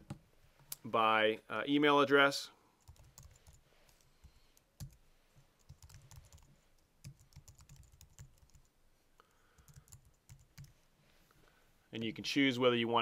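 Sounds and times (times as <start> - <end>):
faint typing on keyboard: 2.8 - 10.8.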